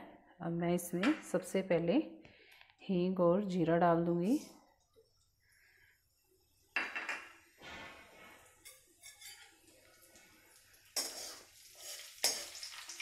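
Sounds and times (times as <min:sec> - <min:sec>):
metal spoon scraping pan: 0:08.3 - 0:09.6, 0:11.0 - 0:13.0
spices sizzling in hot oil: 0:09.0 - 0:13.0.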